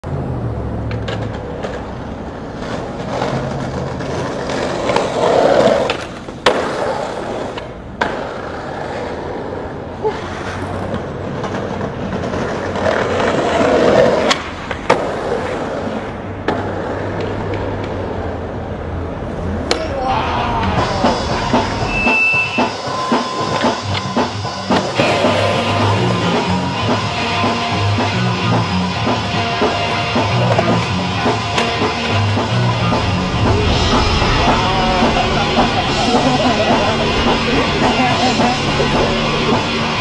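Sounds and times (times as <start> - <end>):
skateboard wheels rolling on pavement: 0.0 - 40.0
skateboard clacks: 0.8 - 18.6, 19.5 - 33.0.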